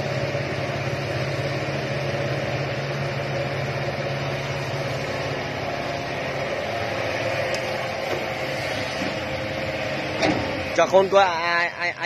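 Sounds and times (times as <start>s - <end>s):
excavator diesel engine humming: 0.0s - 12.0s.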